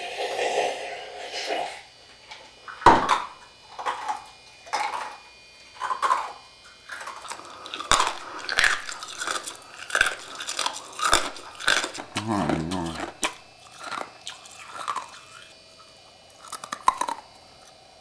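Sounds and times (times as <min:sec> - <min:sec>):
ice crunching between teeth: 0:05.8 - 0:17.8.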